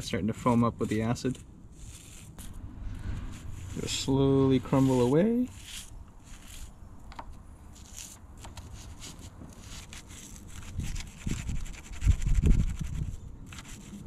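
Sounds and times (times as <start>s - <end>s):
low rumble: 1.5s - 5.2s
toothbrush scrubbing metal: 3.4s - 6.7s.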